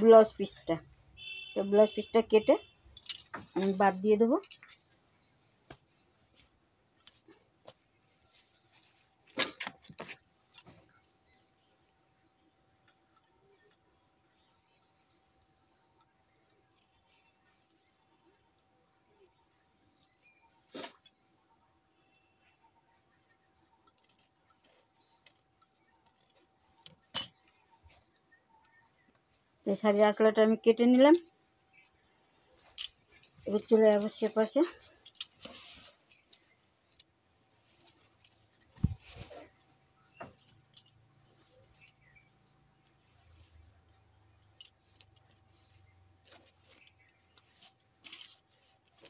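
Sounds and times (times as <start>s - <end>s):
cloth rustling and clicks: 2.5s - 11.6s, 29.0s - 49.0s.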